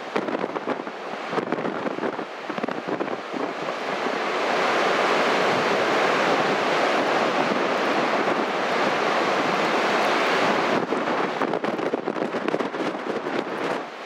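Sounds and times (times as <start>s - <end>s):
storm surf breaking on beach: 0.0s - 14.0s
wind: 0.0s - 14.0s.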